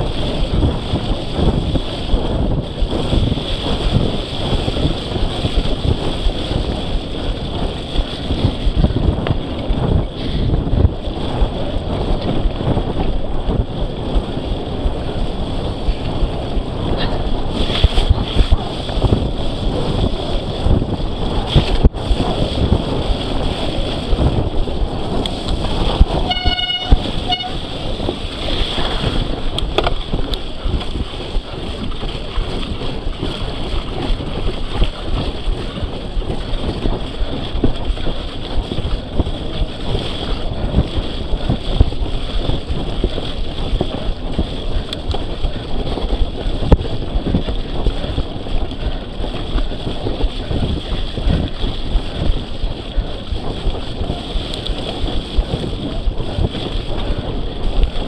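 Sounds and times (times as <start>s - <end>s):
wind buffeting microphone: 0.0s - 58.0s
bike bumps and knocks: 28.4s - 31.2s.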